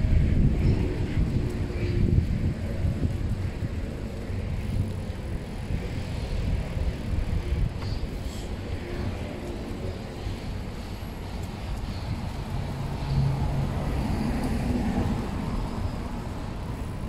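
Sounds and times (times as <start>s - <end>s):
bicycle tyre and road noise: 0.0s - 17.0s
wind on microphone: 0.0s - 17.0s.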